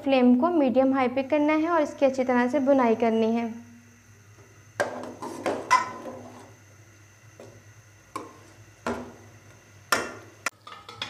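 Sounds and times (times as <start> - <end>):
chicken frying in pot: 4.6 - 11.0.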